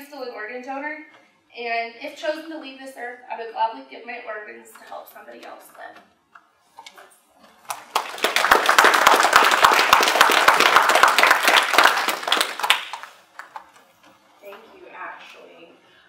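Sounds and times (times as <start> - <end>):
audience applauding: 7.6 - 13.7.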